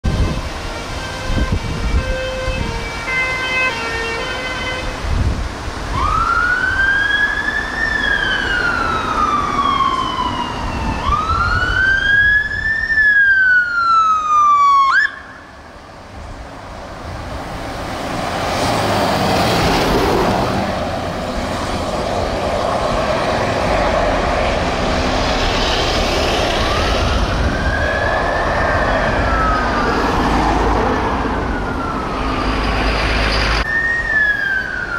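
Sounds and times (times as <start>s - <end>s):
fire engine siren: 0.0s - 5.2s, 5.8s - 34.9s
vehicle engine and road noise: 0.0s - 34.9s.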